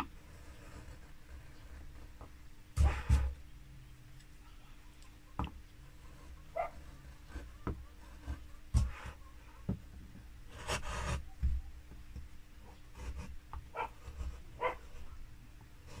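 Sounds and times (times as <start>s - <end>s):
chisel scraping wood: 0.0s - 3.4s, 5.9s - 9.3s, 10.5s - 11.3s, 12.9s - 15.1s, 15.8s - 16.0s.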